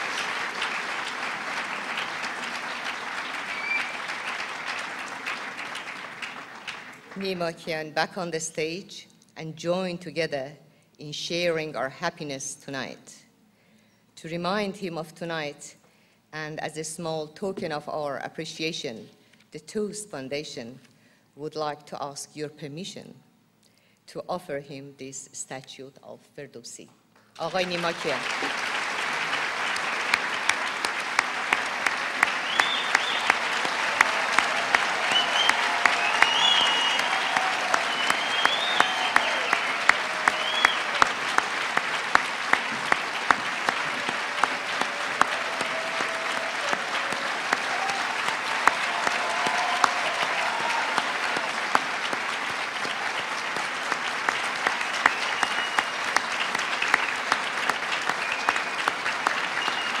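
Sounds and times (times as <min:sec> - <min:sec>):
large audience applauding: 0:00.0 - 0:07.4, 0:27.4 - 1:00.0.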